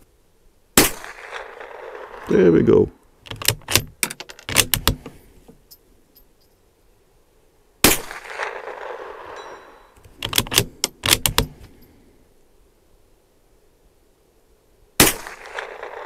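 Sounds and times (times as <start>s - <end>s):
rifle shot echoing: 0.8s - 2.2s, 7.8s - 9.8s, 15.0s - 16.0s
rifle bolt clicking: 3.3s - 5.1s, 10.0s - 11.6s.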